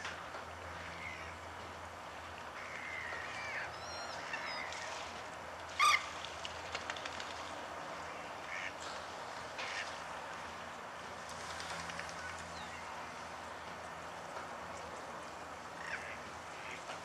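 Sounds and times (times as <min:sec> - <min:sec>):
waterfowl honking call: 0:05.8 - 0:06.1.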